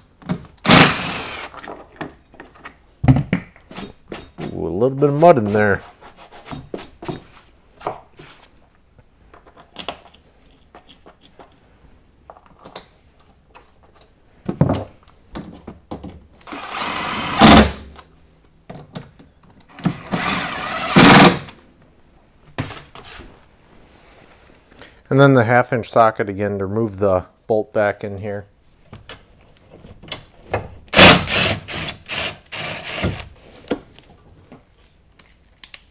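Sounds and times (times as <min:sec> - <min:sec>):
impact driver hammering: 0:30.9 - 0:33.2.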